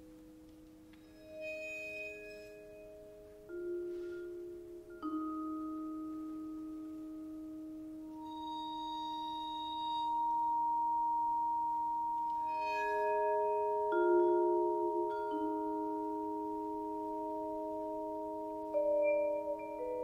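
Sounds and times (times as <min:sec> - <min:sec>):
bowed vibraphone tones: 0:00.0 - 0:20.0.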